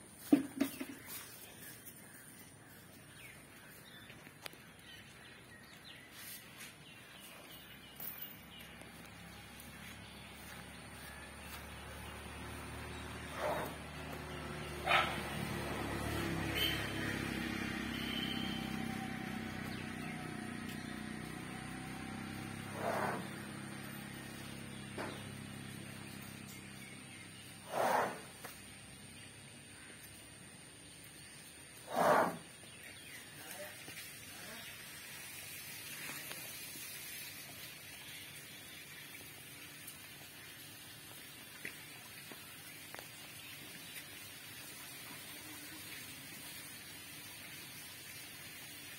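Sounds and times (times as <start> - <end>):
outdoor background hiss: 0.0 - 48.9
vehicle engine running: 6.8 - 31.0.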